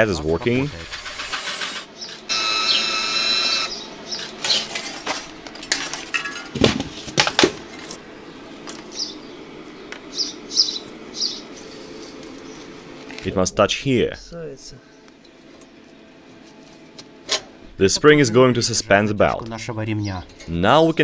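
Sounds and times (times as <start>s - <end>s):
motor whining: 0.4s - 4.7s
bird chirps: 1.9s - 3.0s, 3.6s - 4.7s, 8.9s - 9.4s, 10.1s - 11.7s.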